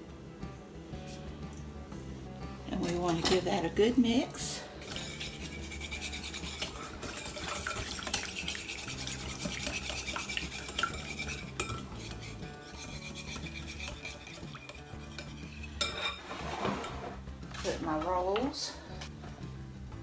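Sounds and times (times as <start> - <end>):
wire whisk beating in ceramic bowl: 2.7 - 3.7, 4.8 - 16.1.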